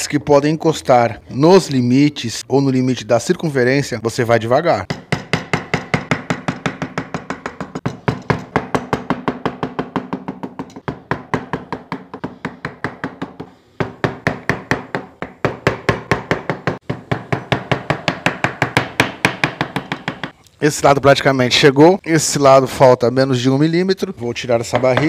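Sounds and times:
mallet striking wood chisel: 0:04.9 - 0:20.4.

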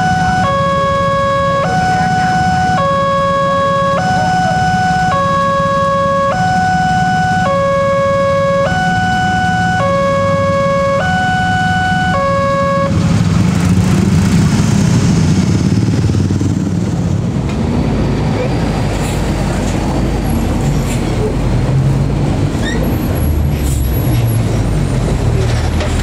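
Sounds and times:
two-tone crossing alarm chime: 0:00.0 - 0:12.9
motorcycle engines running: 0:00.0 - 0:23.0.

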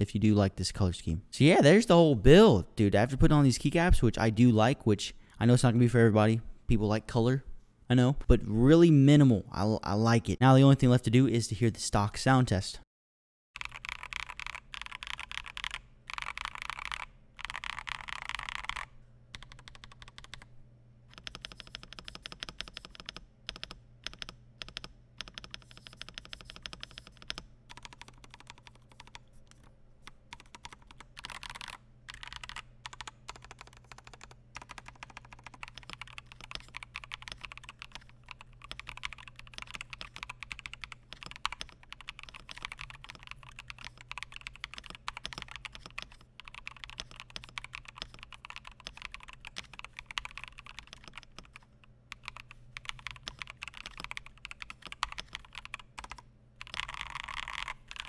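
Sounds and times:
fast keyboard typing: 0:13.6 - 0:20.5, 0:21.1 - 0:58.0.

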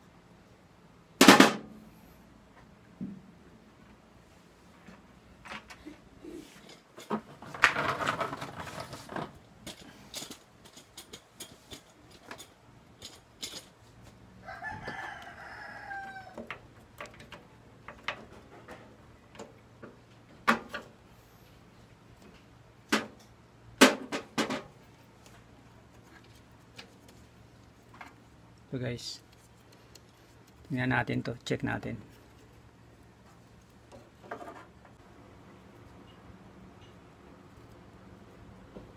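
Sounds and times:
rooster crowing: 0:14.4 - 0:16.6.

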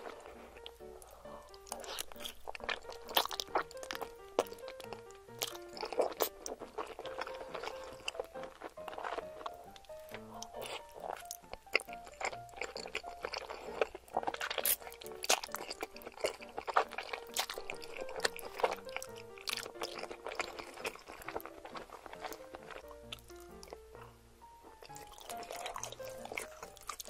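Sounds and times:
wet chewing and slurping: 0:00.0 - 0:24.1, 0:24.7 - 0:27.0
soft plucked background music: 0:00.0 - 0:27.0.

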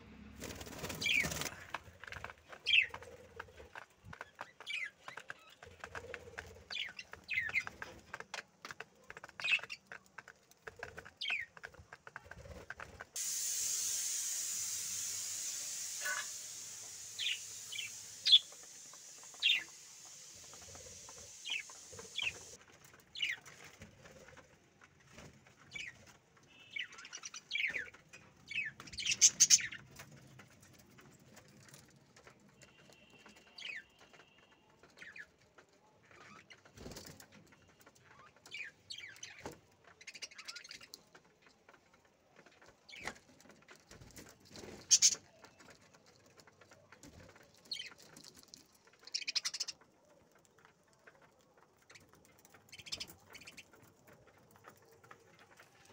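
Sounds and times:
steady high hiss: 0:13.2 - 0:22.6.

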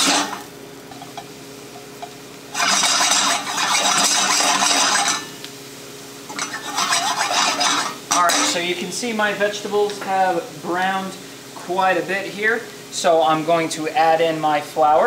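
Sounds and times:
spatula scraping a pan: 0:00.0 - 0:01.3, 0:02.0 - 0:05.4, 0:06.3 - 0:08.6
vegetables frying in butter: 0:00.0 - 0:15.0.

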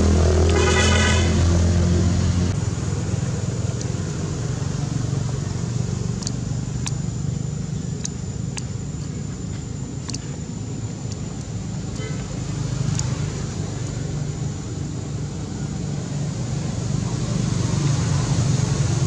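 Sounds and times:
vehicle engine running: 0:00.0 - 0:19.0
sharp clicks: 0:06.1 - 0:07.2, 0:07.9 - 0:08.8, 0:10.0 - 0:10.4, 0:11.0 - 0:11.6, 0:12.8 - 0:13.2.

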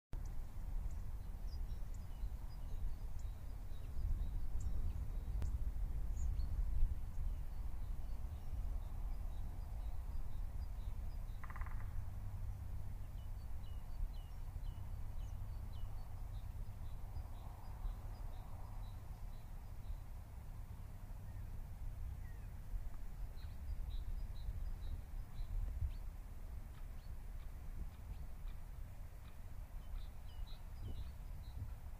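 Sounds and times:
small birds chirping: 0:00.2 - 0:31.9
steady low rumble: 0:00.2 - 0:31.9
low bird call: 0:11.3 - 0:12.2.

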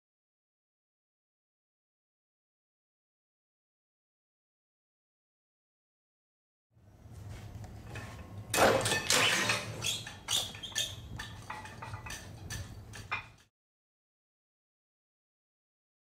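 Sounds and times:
metallic clanks and rattles: 0:07.8 - 0:13.5
steel weight clattering: 0:07.9 - 0:13.5.

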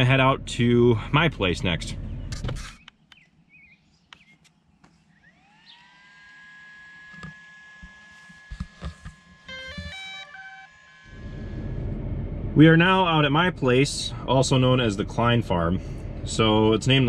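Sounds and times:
drone electronic whine: 0:04.9 - 0:17.0.

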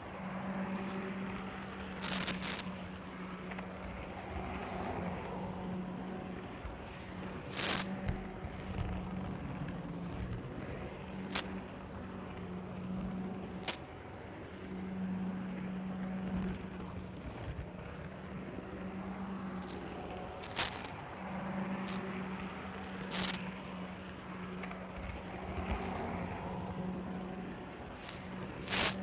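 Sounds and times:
model train motor hum: 0:00.0 - 0:29.0
hiss: 0:07.5 - 0:07.9.

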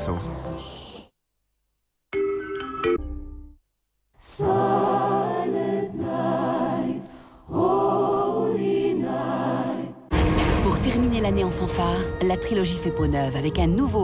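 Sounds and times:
choir singing held chords: 0:04.2 - 0:10.6.

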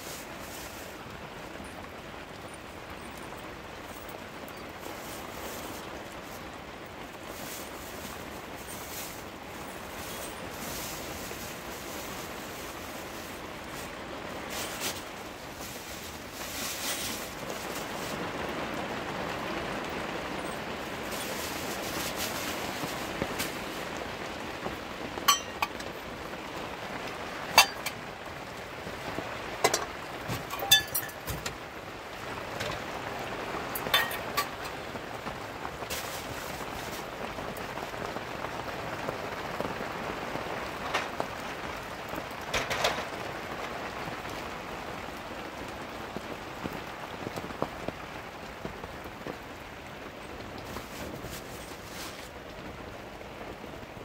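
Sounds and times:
steady hiss: 0:00.0 - 0:42.2
household items clinking and knocking: 0:07.3 - 0:13.9, 0:14.5 - 0:18.2, 0:25.2 - 0:26.0, 0:27.5 - 0:28.0, 0:29.6 - 0:31.6, 0:33.8 - 0:34.8, 0:42.5 - 0:43.1.

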